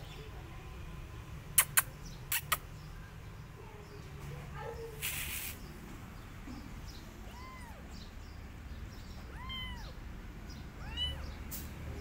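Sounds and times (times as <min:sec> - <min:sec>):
cat meowing: 0:07.2 - 0:07.9, 0:09.2 - 0:10.0, 0:10.8 - 0:11.3.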